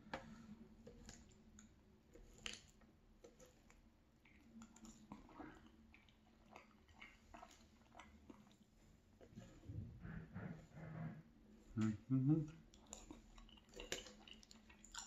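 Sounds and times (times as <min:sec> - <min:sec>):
soft eating mouth noises: 0:00.1 - 0:15.0.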